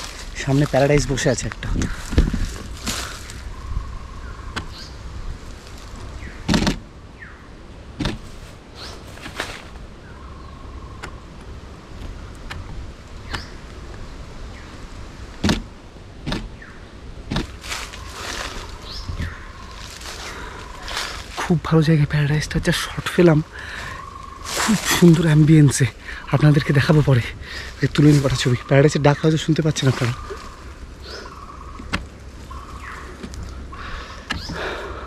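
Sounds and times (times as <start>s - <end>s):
faint bird calls: 0.0s - 5.2s, 8.3s - 11.4s, 17.5s - 35.0s
wind rumble on microphone: 0.0s - 21.5s.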